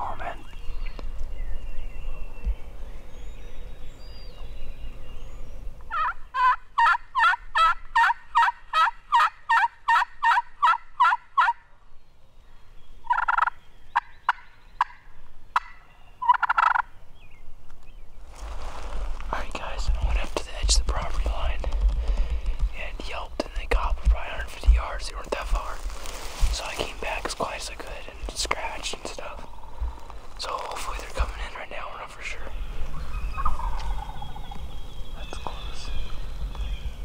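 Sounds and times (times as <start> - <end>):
turkey gobbles: 5.9 - 11.6, 33.0 - 34.6
turkey yelps: 5.9 - 11.6, 13.1 - 13.5, 15.6 - 16.8, 33.0 - 34.5.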